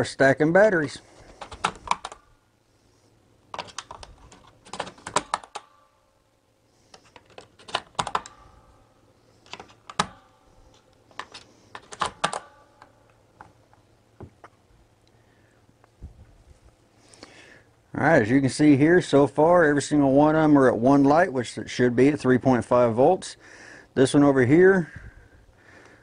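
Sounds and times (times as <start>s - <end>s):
batteries clicking into charger: 3.5s - 5.7s, 9.4s - 13.5s.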